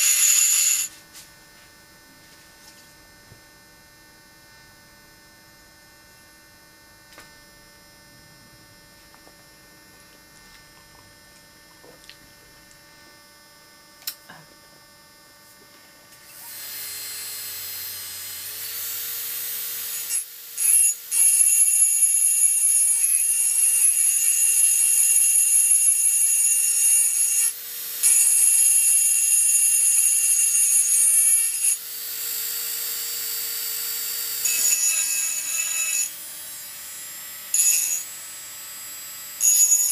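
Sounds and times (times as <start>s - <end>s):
bur grinding glass: 0.0s - 0.9s, 34.4s - 36.1s, 37.5s - 38.1s
engraving drill whining: 0.0s - 0.9s, 16.3s - 38.8s, 39.4s - 39.9s
low mains hum: 0.9s - 20.6s.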